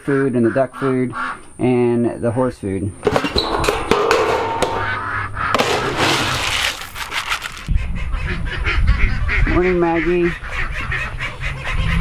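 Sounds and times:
metal trash can lid clanking: 3.0s - 6.9s
plastic scoop digging into pellets: 5.6s - 7.7s
feed pellets rattling and pouring: 5.8s - 7.7s.

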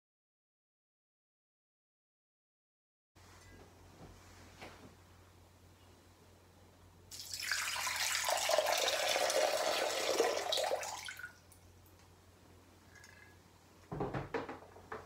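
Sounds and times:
water pouring into glass bowl: 7.1s - 11.4s.

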